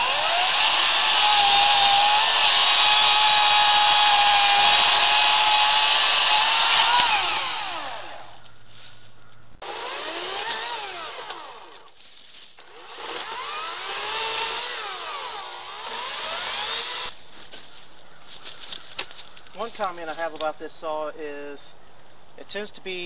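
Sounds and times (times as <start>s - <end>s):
electric chainsaw cutting log: 0.0s - 8.4s, 9.6s - 12.0s, 12.6s - 17.2s.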